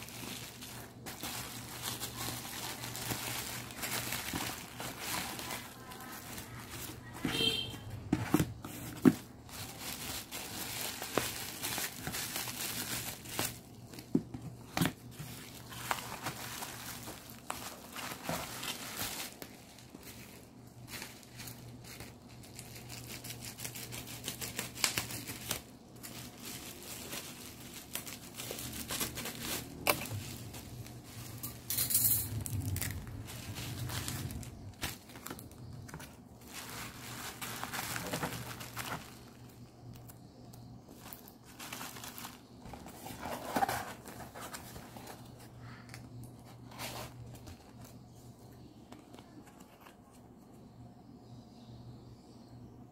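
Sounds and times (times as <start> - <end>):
bubble wrap crinkling: 0.0 - 48.1
cardboard box being folded: 8.1 - 20.4, 41.0 - 45.4.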